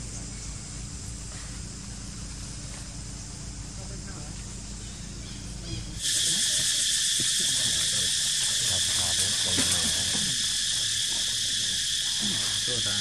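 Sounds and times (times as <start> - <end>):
insects droning: 0.0 - 13.0.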